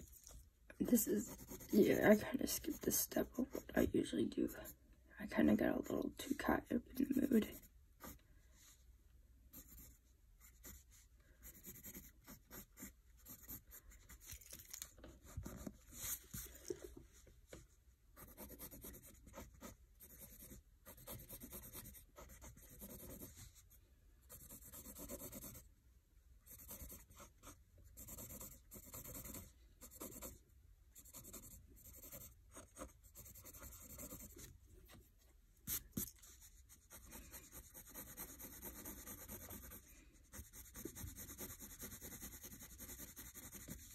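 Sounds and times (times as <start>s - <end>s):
pencil scratching on paper: 0.0s - 3.9s, 7.0s - 8.2s, 9.5s - 14.3s, 15.2s - 16.9s, 18.2s - 25.6s, 26.5s - 30.4s, 31.0s - 34.6s, 35.6s - 43.9s.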